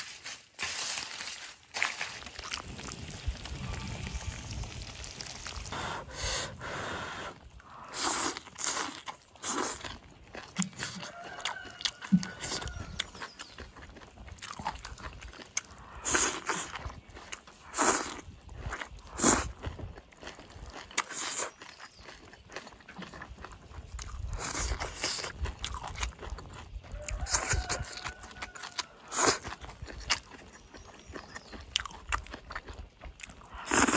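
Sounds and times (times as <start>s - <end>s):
chewing: 1.8s - 33.9s
person slurping: 2.4s - 10.0s, 15.6s - 16.8s, 33.3s - 33.9s.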